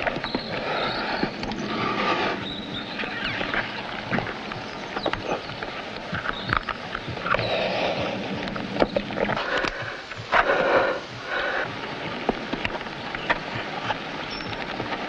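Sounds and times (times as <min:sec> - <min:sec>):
person breathing: 0:00.5 - 0:02.5, 0:07.3 - 0:08.4, 0:09.3 - 0:11.8.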